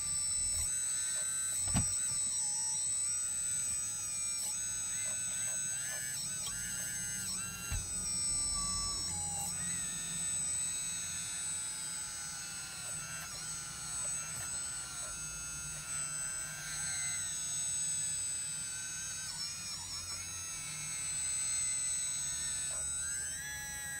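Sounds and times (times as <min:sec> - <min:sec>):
hydraulic pump whining: 0:00.0 - 0:17.9.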